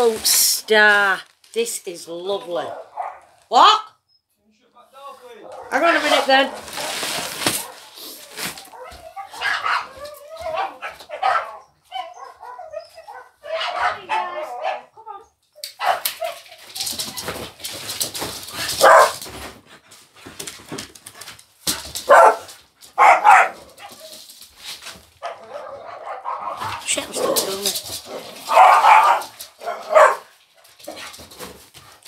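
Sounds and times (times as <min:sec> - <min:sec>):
dog barking: 0:02.6 - 0:03.4, 0:05.4 - 0:06.8, 0:07.6 - 0:08.0, 0:08.7 - 0:15.0, 0:15.8 - 0:16.4, 0:18.8 - 0:19.2, 0:22.1 - 0:24.1, 0:25.2 - 0:27.3, 0:28.1 - 0:30.3.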